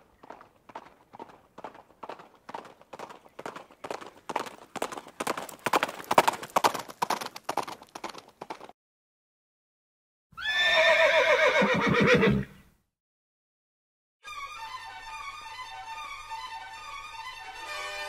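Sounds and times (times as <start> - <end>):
horse hooves galloping: 0.0 - 8.7
horse neighing: 10.4 - 12.6.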